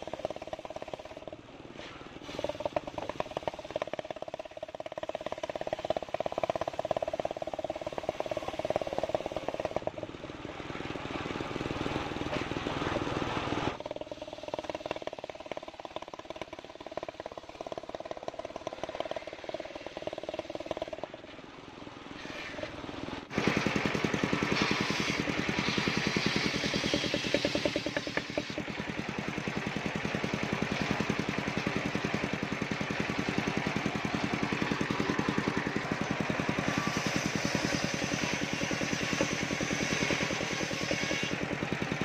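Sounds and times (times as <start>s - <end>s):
saw blade cutting log: 0.0s - 9.9s, 22.2s - 28.8s, 36.1s - 41.6s
engine running with rapid beat: 0.0s - 42.0s.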